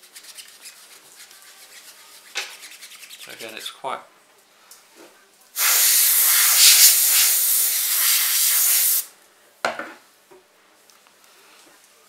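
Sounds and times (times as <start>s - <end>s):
aerosol spray can hissing: 5.6s - 9.1s.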